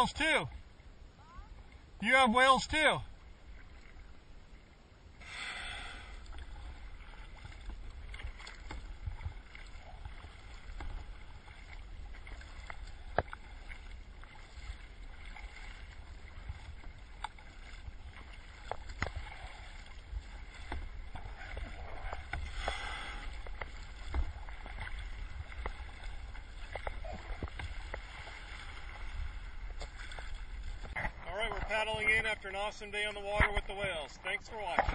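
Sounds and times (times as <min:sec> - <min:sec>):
water splashing around paddle: 0:01.5 - 0:34.9
low wind rumble: 0:03.0 - 0:32.8.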